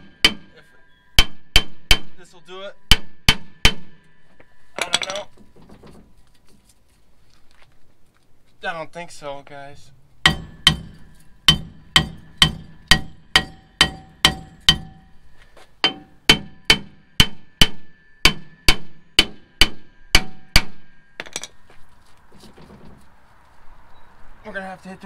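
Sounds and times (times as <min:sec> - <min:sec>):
axe striking metal brake drum: 0:00.0 - 0:00.6, 0:02.9 - 0:04.1, 0:10.2 - 0:15.2, 0:15.8 - 0:21.6.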